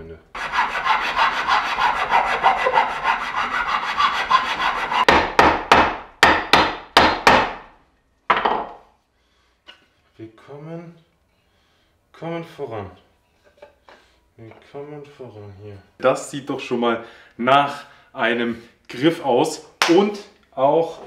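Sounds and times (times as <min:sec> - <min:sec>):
sanding wood by hand: 0:00.4 - 0:05.1.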